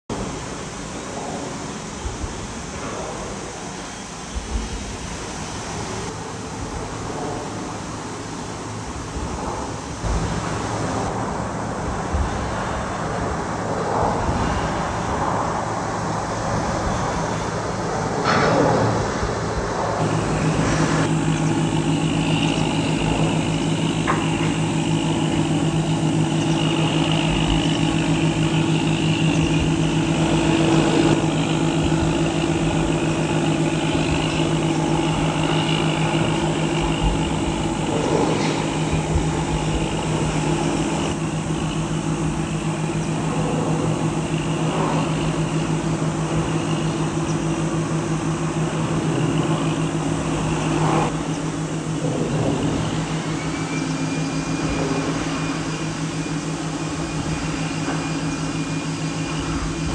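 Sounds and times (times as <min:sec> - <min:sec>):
engine drone: 0:00.0 - 0:59.9
high whine: 0:00.1 - 0:59.9.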